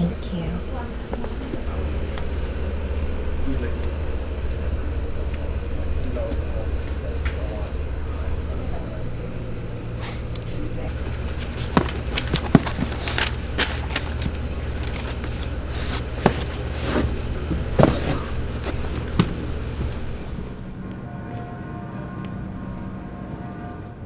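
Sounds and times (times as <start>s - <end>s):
steady low hum: 0.0s - 24.0s
books knocking on shelves: 10.9s - 20.4s.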